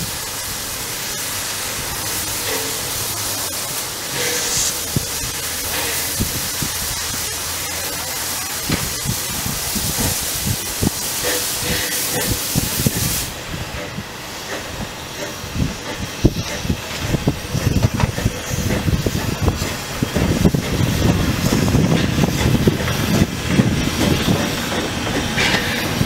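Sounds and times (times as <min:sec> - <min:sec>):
steam hissing: 0:00.0 - 0:26.0
locomotive knocks and thumps: 0:15.2 - 0:26.0.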